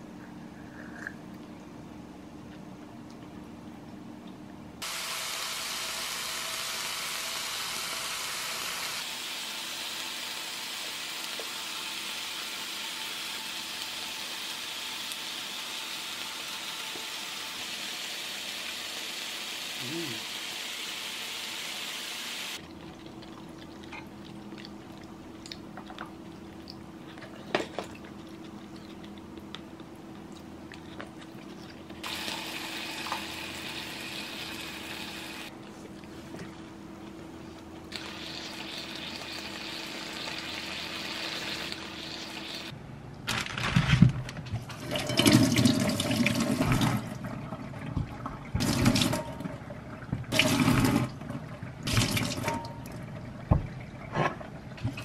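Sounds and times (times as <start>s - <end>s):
food hissing on grill pan: 4.8s - 22.6s.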